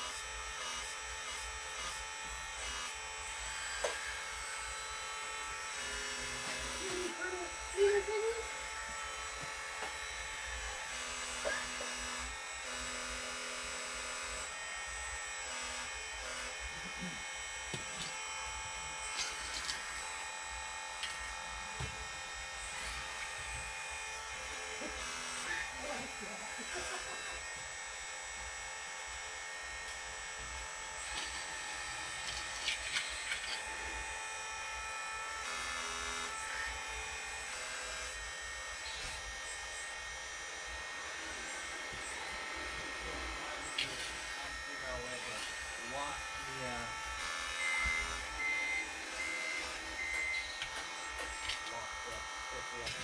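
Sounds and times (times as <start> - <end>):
electric pump high whine: 0.0 - 53.0
low motor tone: 0.0 - 53.0.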